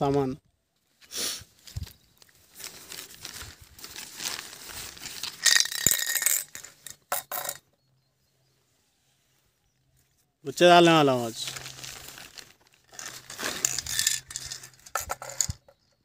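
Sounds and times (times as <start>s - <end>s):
fishing gear rustling and clinking: 1.6s - 7.7s, 11.2s - 16.0s
fishing gear clattering: 5.1s - 7.6s, 11.4s - 16.0s.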